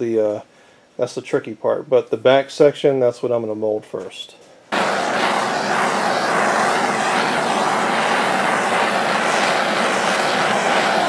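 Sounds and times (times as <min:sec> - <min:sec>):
gas torch hissing: 0:04.7 - 0:11.0.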